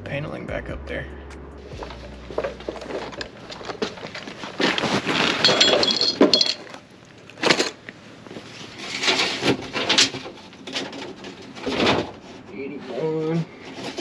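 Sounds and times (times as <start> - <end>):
objects clattering and rustling: 1.6 - 14.0
metallic clinks: 5.4 - 6.7.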